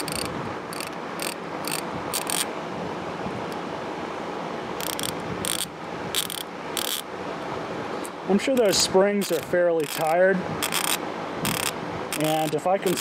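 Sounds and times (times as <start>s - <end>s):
hand ratchet clicking: 0.0s - 2.5s, 4.8s - 7.0s, 8.6s - 13.0s.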